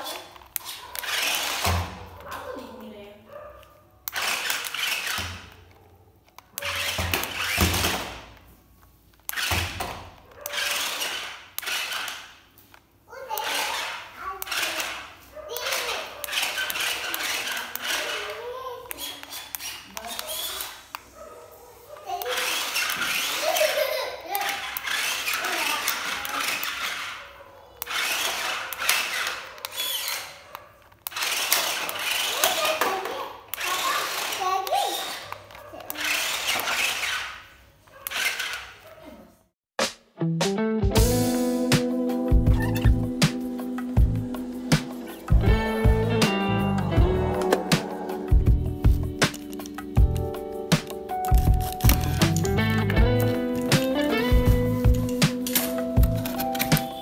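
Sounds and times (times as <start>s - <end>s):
toy car electric motors whirring: 0.0s - 2.6s, 4.0s - 8.5s, 9.1s - 21.2s, 21.8s - 39.1s, 48.3s - 57.0s.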